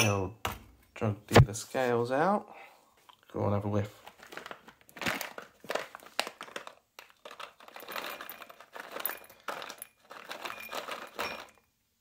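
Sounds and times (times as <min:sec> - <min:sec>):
plastic bag crinkling: 0:03.9 - 0:11.6.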